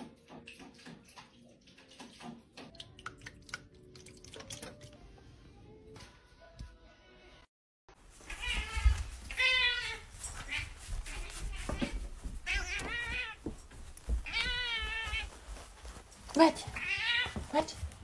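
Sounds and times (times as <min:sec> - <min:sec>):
cat meowing: 0:08.3 - 0:13.4, 0:14.2 - 0:15.3, 0:16.8 - 0:17.5.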